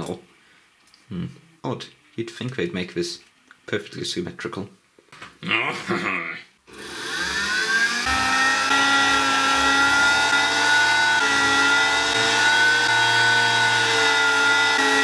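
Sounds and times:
rotary tool whining: 0:06.7 - 0:15.0.

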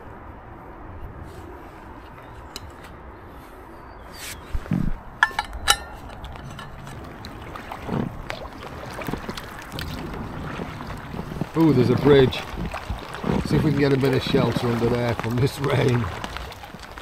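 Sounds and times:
distant road traffic hum: 0:00.0 - 0:17.0
metal flask clinks: 0:05.2 - 0:06.8.

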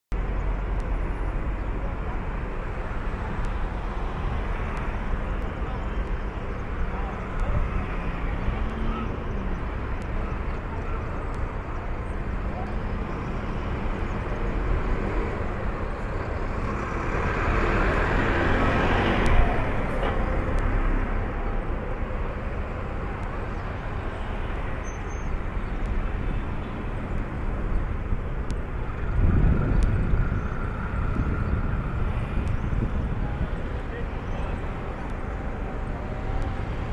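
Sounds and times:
traffic rumble: 0:00.1 - 0:36.9
vehicle passing: 0:16.3 - 0:21.2.

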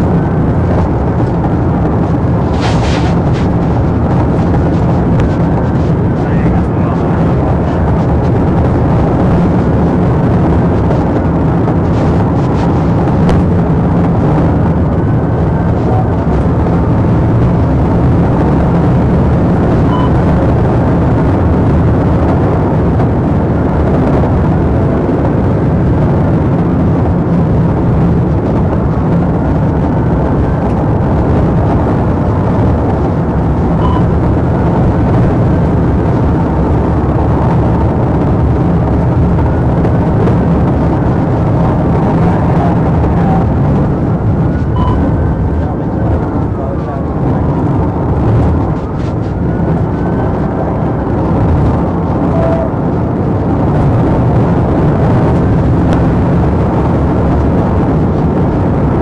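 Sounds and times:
car engine and road noise: 0:00.0 - 0:59.0
faint siren wail: 0:52.1 - 0:52.8.

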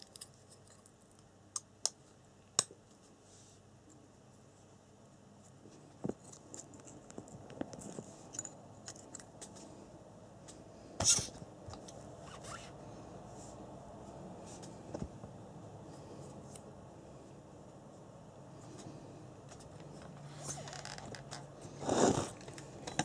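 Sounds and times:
handling clicks and rustles: 0:05.4 - 0:09.8.

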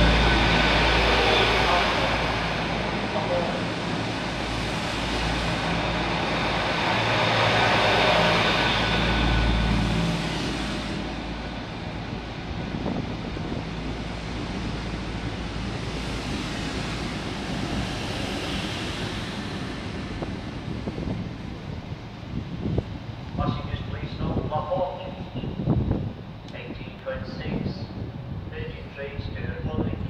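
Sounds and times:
train high whine: 0:00.0 - 0:30.0
train passing with rumble: 0:00.0 - 0:30.0.

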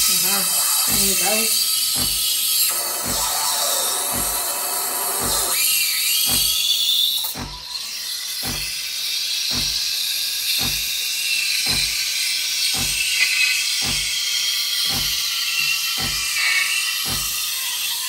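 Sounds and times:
low machine pulse: 0:00.0 - 0:05.6, 0:09.5 - 0:09.9, 0:10.6 - 0:11.0, 0:11.6 - 0:12.1, 0:12.7 - 0:17.8
steam wand hissing in milk: 0:00.0 - 0:18.0.

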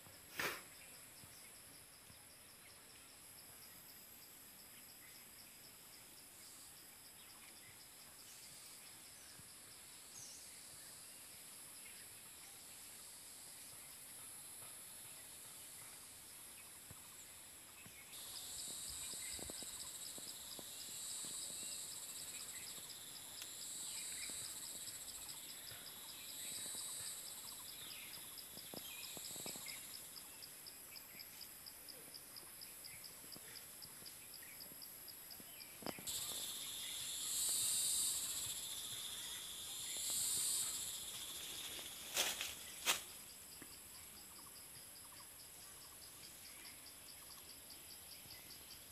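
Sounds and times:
high insect calls: 0:00.0 - 0:48.9
insects high-pitched whine: 0:00.0 - 0:48.9
insect pulsing trill: 0:18.1 - 0:31.6, 0:35.3 - 0:48.9.

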